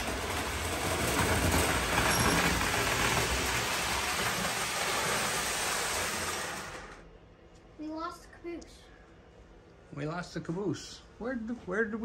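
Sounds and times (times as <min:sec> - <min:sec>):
model train wheels on rails: 0:00.0 - 0:07.1.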